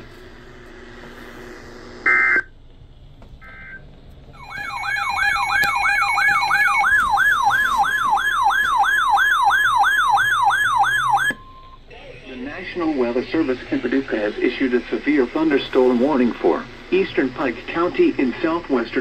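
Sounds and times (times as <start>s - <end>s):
warbling alert sirens: 2.0s - 2.5s, 3.4s - 11.8s
steady alert tone: 4.4s - 8.4s.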